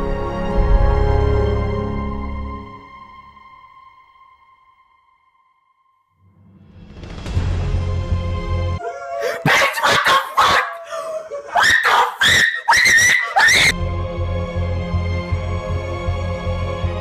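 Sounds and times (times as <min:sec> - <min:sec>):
high-pitched wavering cries: 0:08.8 - 0:13.8.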